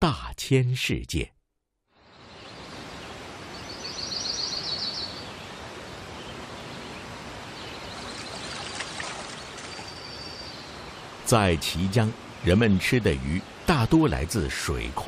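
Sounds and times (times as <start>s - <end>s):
bird singing fast trill: 3.5s - 5.4s, 7.6s - 11.0s
oar splashing in water: 8.0s - 10.0s.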